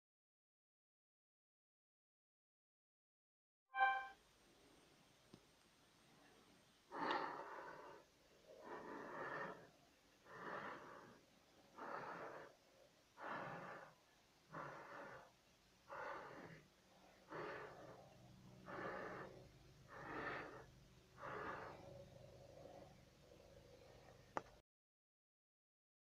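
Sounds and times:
person breathing: 6.9 - 24.5.

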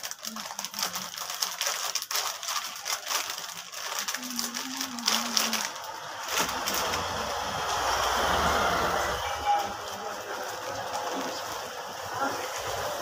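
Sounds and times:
plastic packaging crinkling: 0.0 - 8.1, 8.9 - 13.0
person humming: 4.0 - 5.8.

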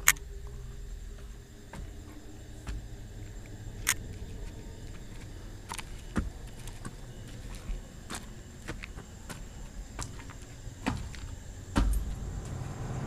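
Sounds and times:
camera handling rumble: 3.8 - 4.2.

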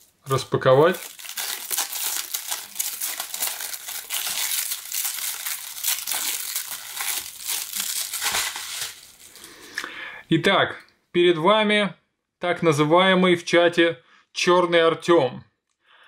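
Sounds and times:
plastic wrapping crinkling: 0.0 - 9.8.

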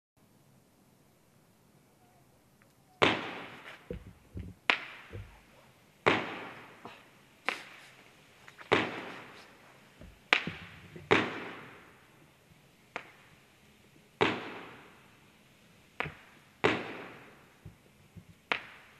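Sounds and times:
faint pops and low thuds: 3.0 - 6.4, 8.6 - 11.8, 16.0 - 18.9
firework shots banging with echo: 3.0 - 6.9, 8.7 - 12.1, 14.2 - 15.1, 16.0 - 18.9.

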